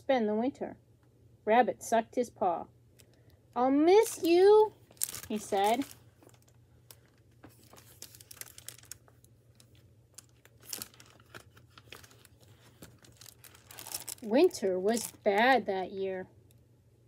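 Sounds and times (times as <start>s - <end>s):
faint steady hum: 0.0s - 17.0s
book rustling and crinkling: 4.0s - 15.6s.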